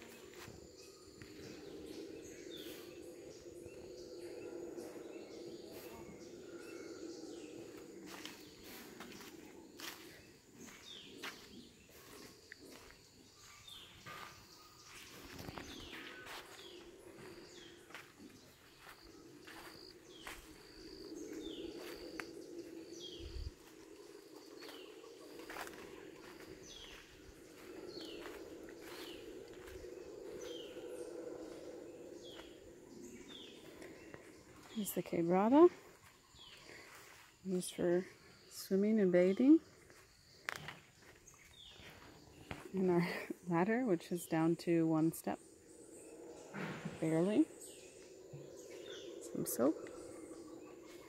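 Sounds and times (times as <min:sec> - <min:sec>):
low hum: 0:00.0 - 0:36.0
low steady drone: 0:00.0 - 0:39.5, 0:43.5 - 0:51.0
high insect whine: 0:00.0 - 0:51.0
bird chirps and calls: 0:10.6 - 0:39.6
footsteps on leaf litter: 0:24.6 - 0:29.8.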